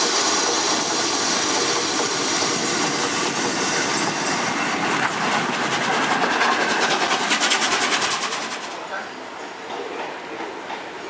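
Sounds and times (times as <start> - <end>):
steam locomotive hissing steam: 0.0 - 11.0.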